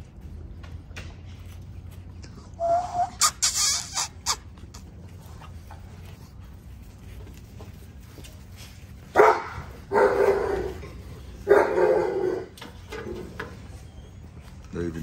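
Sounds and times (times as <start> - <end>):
puppies yapping: 1.4 - 14.6
puppy squeal: 2.5 - 5.2, 13.5 - 14.6.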